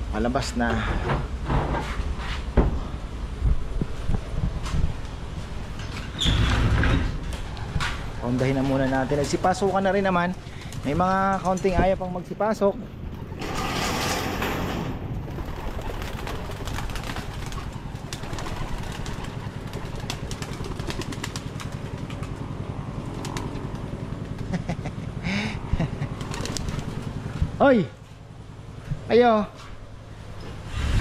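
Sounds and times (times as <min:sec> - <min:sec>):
pigeon wings flapping: 0:15.2 - 0:22.4, 0:23.0 - 0:24.5, 0:25.9 - 0:27.1.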